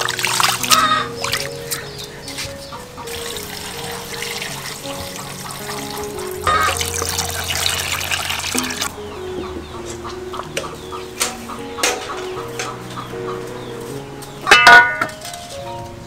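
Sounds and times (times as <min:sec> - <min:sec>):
water splashing onto ground: 0:00.0 - 0:01.9, 0:03.1 - 0:08.9
soft background music: 0:00.0 - 0:16.0
metal bowls clinking: 0:03.1 - 0:09.0, 0:09.8 - 0:13.0, 0:14.4 - 0:15.5.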